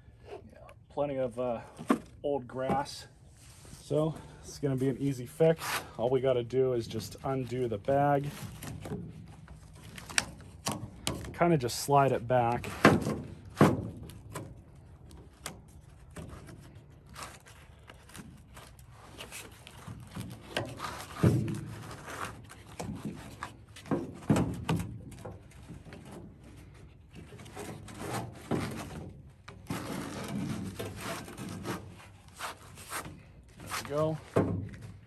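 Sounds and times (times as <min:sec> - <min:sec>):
cloth scraping on metal frame: 0:15.8 - 0:23.9, 0:25.5 - 0:34.8.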